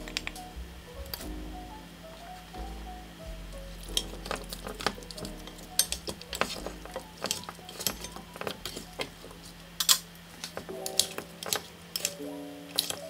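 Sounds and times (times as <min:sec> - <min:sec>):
soft background music: 0:00.0 - 0:13.0
wooden utensils clacking on pan: 0:03.9 - 0:12.2.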